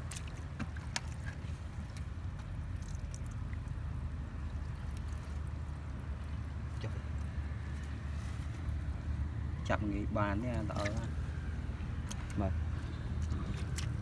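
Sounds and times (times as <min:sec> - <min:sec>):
hands squelching in mud: 0:00.0 - 0:06.0, 0:10.4 - 0:14.0
steady low rumble: 0:00.0 - 0:14.0.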